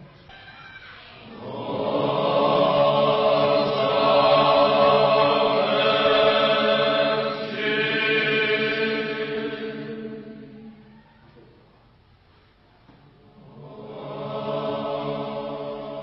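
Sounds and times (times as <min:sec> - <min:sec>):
choir singing a chant: 0:01.2 - 0:11.0, 0:13.4 - 0:16.0.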